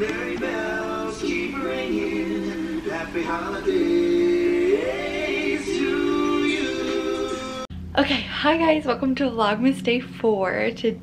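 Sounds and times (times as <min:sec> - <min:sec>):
group singing from tv speakers: 0:00.0 - 0:07.7.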